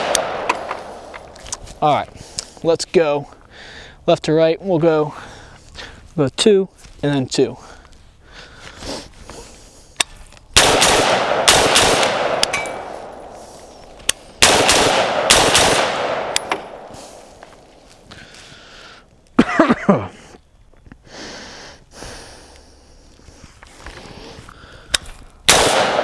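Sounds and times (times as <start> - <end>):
rifle shots with echo: 0.0 - 1.4, 10.6 - 17.4, 25.5 - 26.0.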